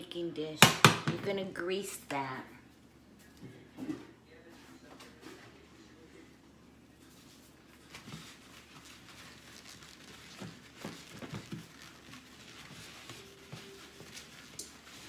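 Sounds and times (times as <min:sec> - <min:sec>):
paper towel scuffing glass dish: 0:07.0 - 0:15.0.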